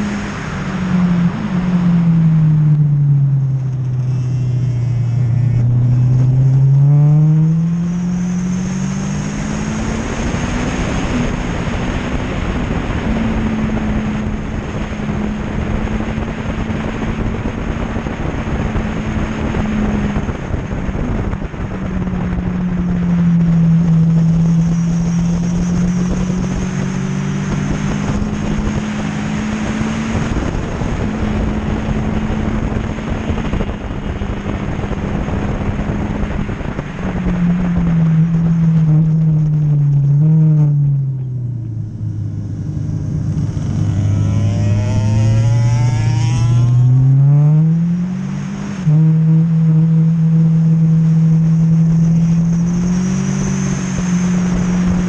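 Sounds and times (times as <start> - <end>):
motorcycle engine at speed: 0.0 - 55.0
wind noise on microphone: 0.0 - 55.0.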